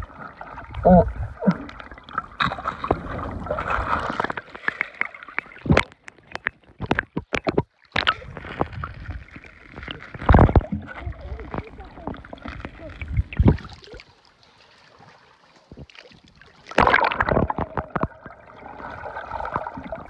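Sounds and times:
muffled underwater gurgling: 0.0s - 2.0s, 10.1s - 14.0s
sharp clicks and splashes: 1.4s - 20.0s.

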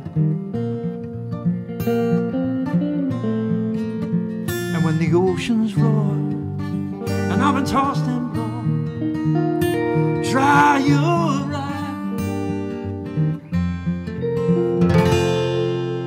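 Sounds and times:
acoustic guitar strumming: 0.0s - 16.0s
electric guitar lead notes: 0.0s - 16.0s.

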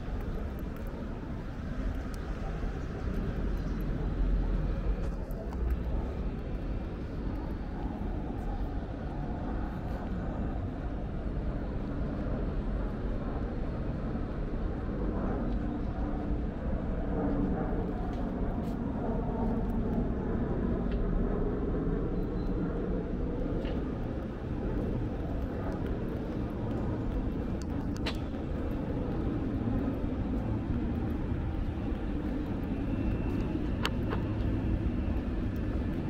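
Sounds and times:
faint clicks: 0.0s - 4.0s, 23.6s - 30.4s
distant city traffic hum: 0.0s - 36.0s.

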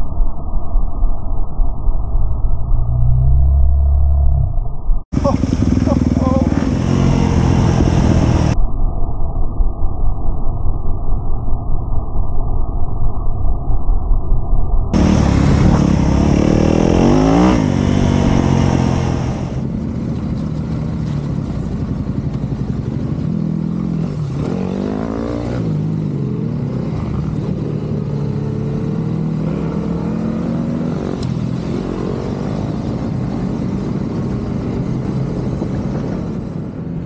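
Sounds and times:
motorcycle engine revving: 5.2s - 8.6s, 15.0s - 36.3s.

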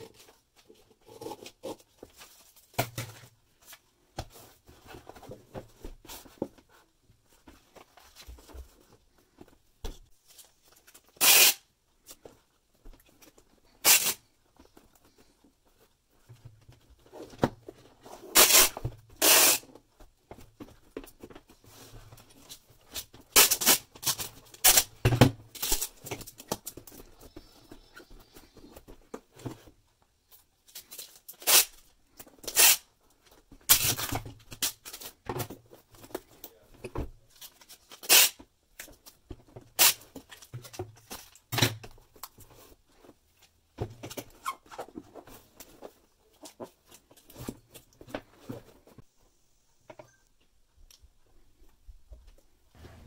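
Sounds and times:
paper and cardboard rustling: 0.0s - 11.2s
packing tape ripping: 11.2s - 11.6s, 13.8s - 14.2s, 18.3s - 19.7s, 23.3s - 24.9s, 31.4s - 31.8s, 32.5s - 32.9s, 37.9s - 38.4s, 39.8s - 40.0s.

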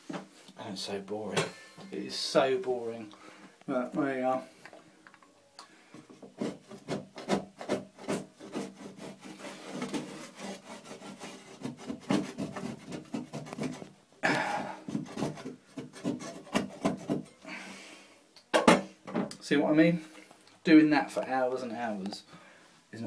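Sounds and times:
metal scraper scraping wallpaper: 6.4s - 13.9s, 14.9s - 17.3s.

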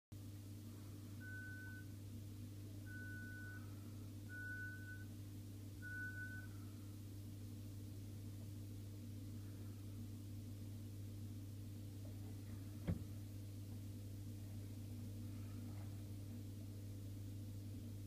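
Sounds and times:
steady low hum: 0.2s - 18.0s.

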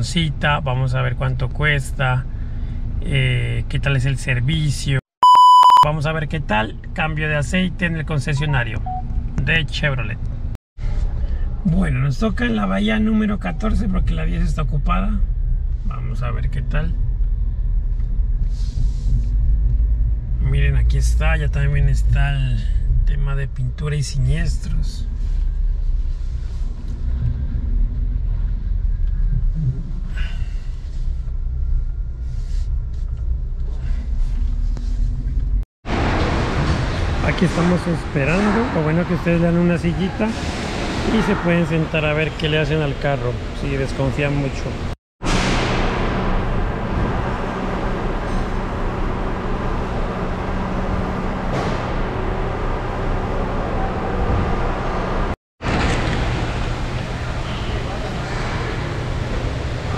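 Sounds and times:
car engine rumble from inside cabin: 13.4s - 22.9s, 24.2s - 35.6s
machine hum: 45.2s - 59.9s.

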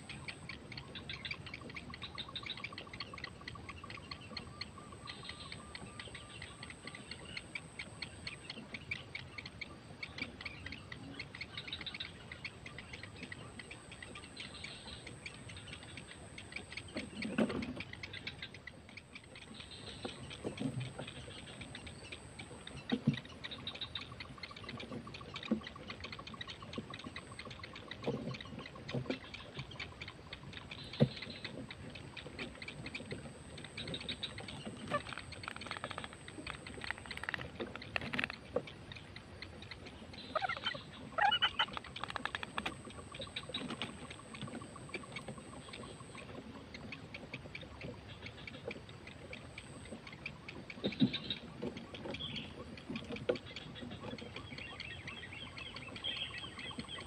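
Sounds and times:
heron chicks ticking begging calls: 0.0s - 57.0s.

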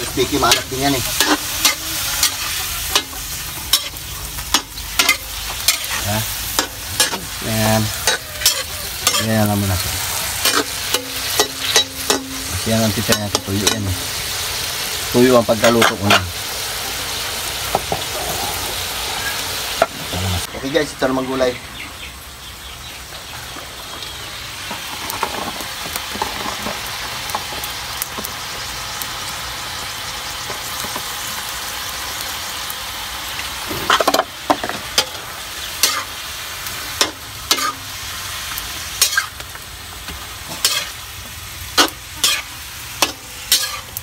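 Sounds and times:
utensil scraping a wok: 0.0s - 16.7s, 17.8s - 20.2s, 33.6s - 44.0s
vegetables sizzling in a wok: 0.0s - 44.0s.

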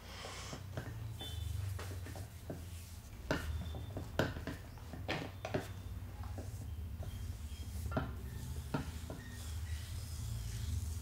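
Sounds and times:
hands rubbing hair: 1.5s - 4.2s, 6.4s - 11.0s.

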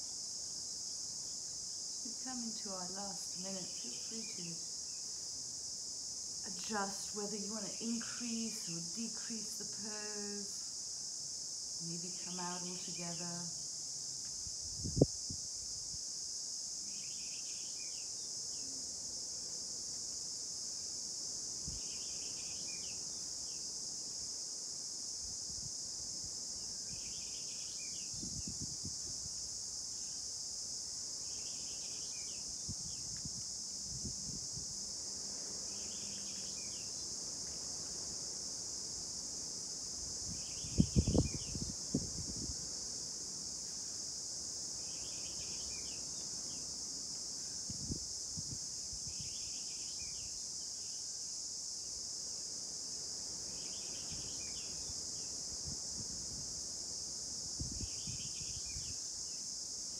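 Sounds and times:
crickets chirping: 0.0s - 59.9s.

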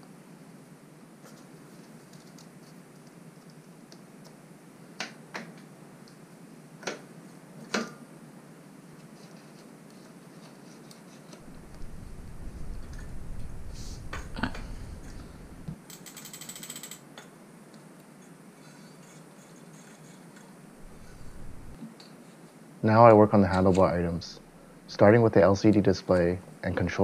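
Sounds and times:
low rumbling: 11.4s - 15.8s, 20.8s - 21.8s
rapid ratchet clicks: 15.9s - 17.0s.

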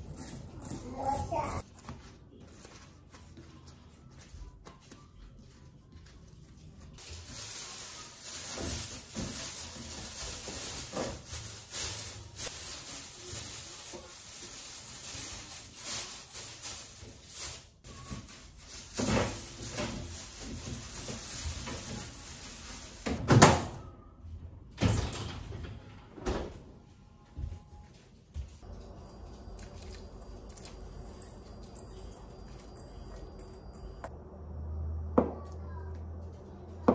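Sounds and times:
plastic bags rustling: 5.8s - 23.2s.

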